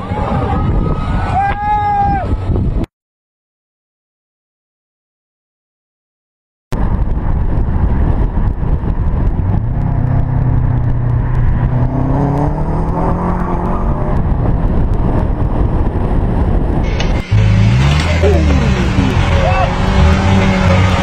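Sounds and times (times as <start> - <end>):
truck engine revving: 9.3 - 14.5, 16.8 - 21.0.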